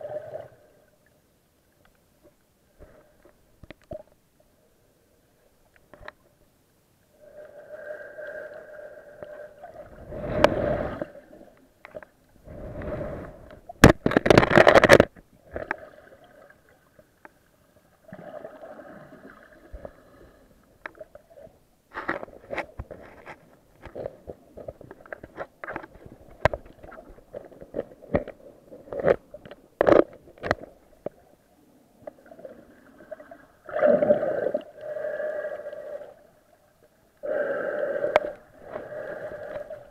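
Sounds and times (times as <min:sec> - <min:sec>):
water swishing underwater: 0:00.0 - 0:39.9
sharp clicks and knocks: 0:13.8 - 0:15.7.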